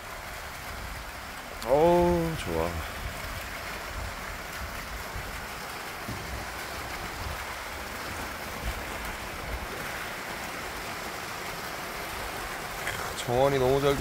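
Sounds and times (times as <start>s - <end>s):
fountain jets splashing: 0.0s - 14.0s
wind buffeting microphone: 2.1s - 10.8s.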